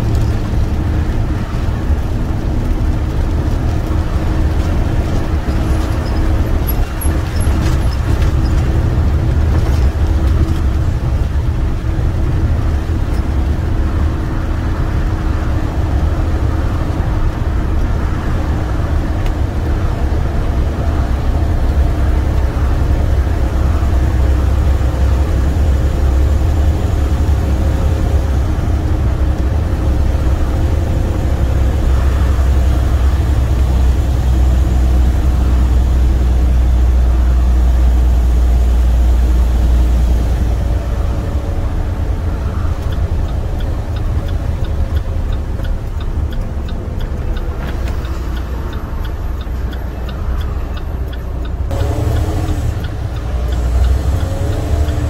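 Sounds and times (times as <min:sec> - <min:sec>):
truck diesel engine drone: 0:00.0 - 0:55.0
regular ticking: 0:41.9 - 0:55.0.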